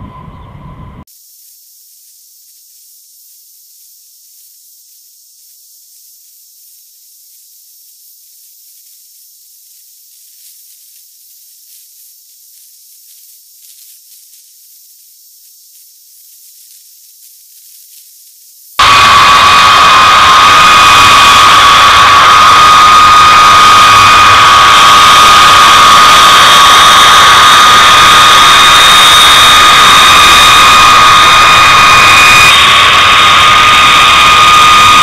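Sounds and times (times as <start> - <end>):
aircraft engine whine: 0.0 - 1.1, 18.8 - 35.0
high-pitched hiss: 1.1 - 35.0.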